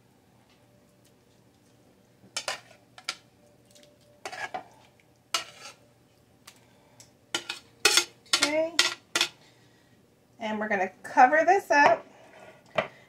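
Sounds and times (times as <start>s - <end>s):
metal tongs clinking on plate: 7.4s - 9.4s.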